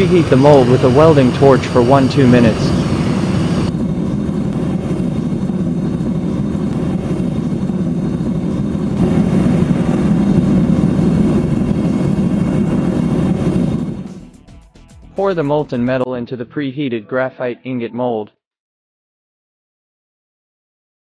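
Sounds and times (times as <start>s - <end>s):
gas burner flame roaring: 0.0s - 14.2s.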